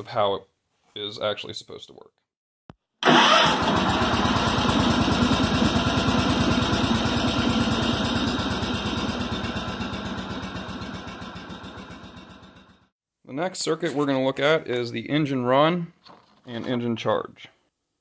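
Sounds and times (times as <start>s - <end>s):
engine idling: 3.1s - 12.9s.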